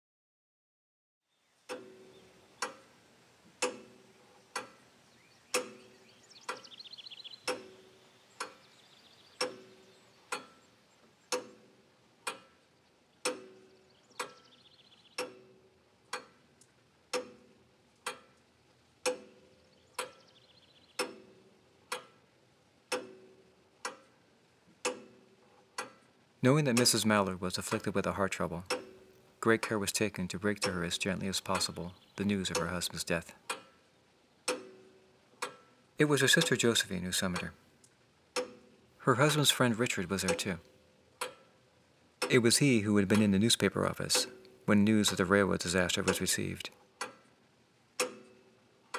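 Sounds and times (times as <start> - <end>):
clock ticking: 1.7 - 3.0, 3.6 - 4.9, 5.5 - 8.7, 9.4 - 14.6, 15.2 - 20.4, 21.0 - 33.8, 34.4 - 48.9
faint high chirping: 4.8 - 11.0, 13.6 - 15.7.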